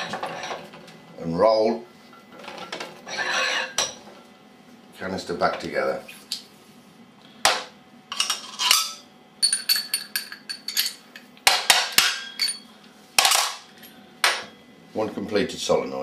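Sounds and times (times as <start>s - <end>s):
metallic clinks and knocks: 9.4s - 11.0s.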